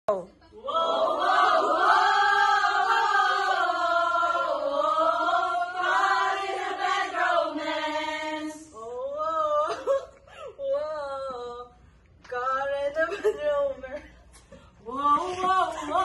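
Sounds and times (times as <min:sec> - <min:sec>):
women singing unaccompanied: 0:00.6 - 0:10.0, 0:14.8 - 0:16.0.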